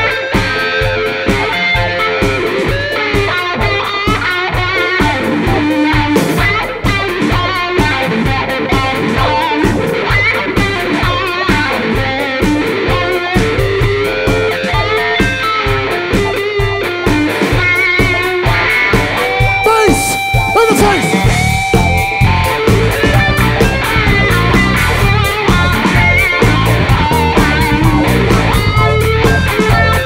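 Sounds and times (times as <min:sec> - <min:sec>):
bass guitar: 0:00.0 - 0:30.0
drums keeping a steady beat: 0:00.0 - 0:30.0
electric guitar soloing: 0:00.0 - 0:30.0.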